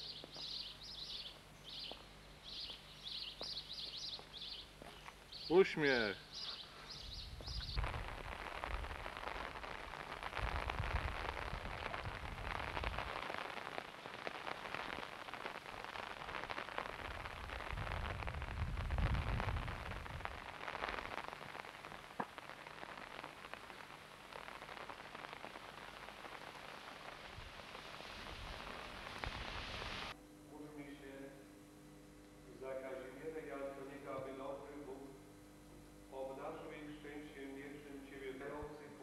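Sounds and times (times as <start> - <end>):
low rumbles on microphone: 7.0 - 9.2, 10.0 - 13.2, 17.0 - 20.5
steady rain pattering: 7.4 - 30.2.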